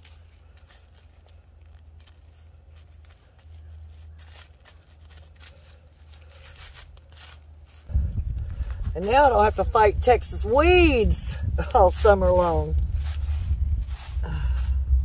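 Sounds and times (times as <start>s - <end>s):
hands rustling soil and plants: 0.0s - 15.0s
low rumble: 7.8s - 15.0s.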